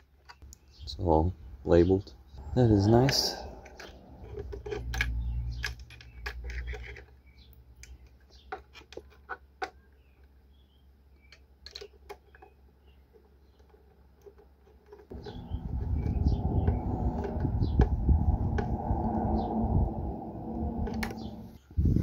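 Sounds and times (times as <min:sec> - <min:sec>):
low rumble: 0:02.4 - 0:05.8, 0:15.1 - 0:22.0.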